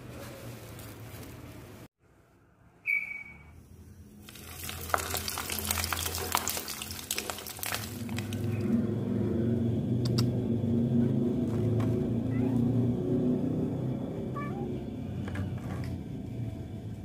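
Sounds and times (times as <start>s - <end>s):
fish sizzling in hot oil: 4.3s - 8.5s.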